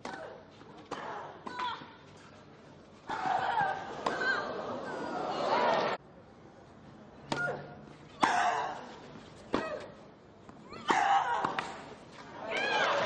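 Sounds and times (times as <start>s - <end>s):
racket striking tennis ball: 10.8s - 12.2s.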